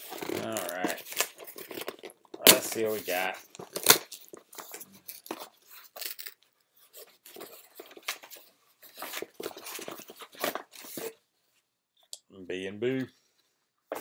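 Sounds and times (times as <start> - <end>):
cardboard box scraping and tearing: 0.0 - 1.9.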